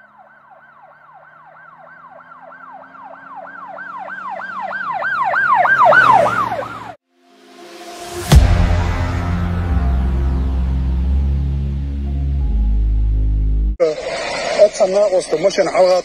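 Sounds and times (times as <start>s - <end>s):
emergency siren yelping: 0.0s - 7.0s
music: 7.1s - 13.8s.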